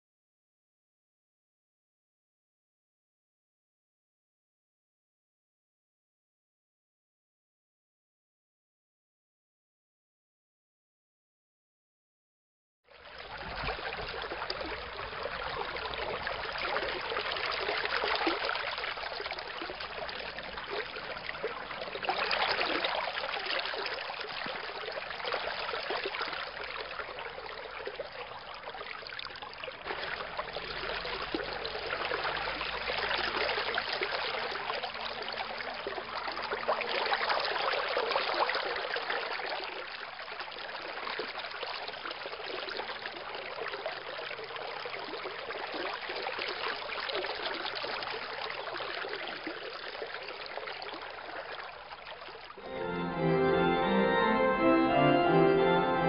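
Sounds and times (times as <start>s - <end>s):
running water: 13.0s - 56.0s.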